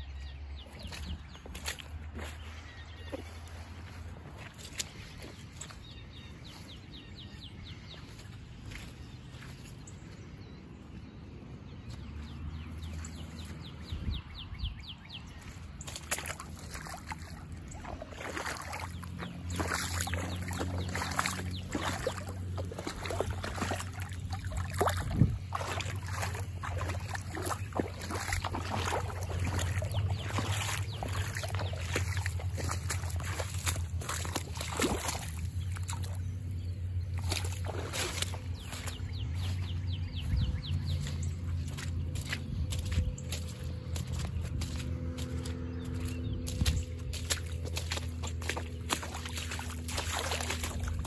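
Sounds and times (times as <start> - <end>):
water flowing and splashing: 15.4 - 51.0.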